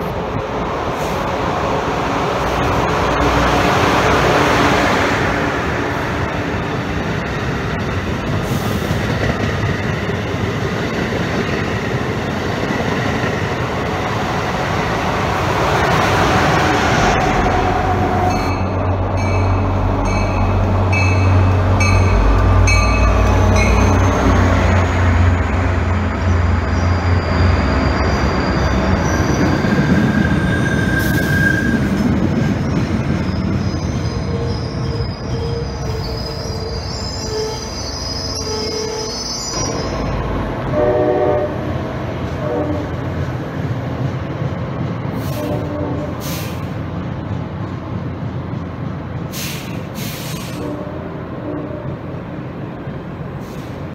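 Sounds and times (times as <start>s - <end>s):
diesel locomotive running: 0.0s - 53.9s
train passing at speed: 0.0s - 53.9s
wheels squealing on rails: 6.2s - 41.5s, 49.3s - 52.1s
bell ringing: 18.3s - 24.2s.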